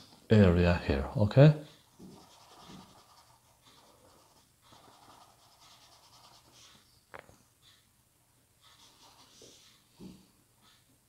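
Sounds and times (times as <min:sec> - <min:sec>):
paintbrush scratching on canvas: 0:01.7 - 0:06.9, 0:08.6 - 0:09.8.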